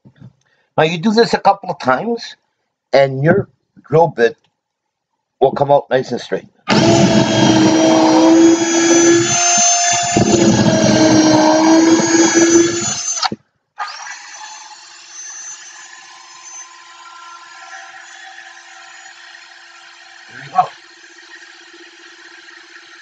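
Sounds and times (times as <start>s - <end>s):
cordless drill drilling into wood: 6.7s - 23.0s
drill spinning freely: 6.7s - 23.0s.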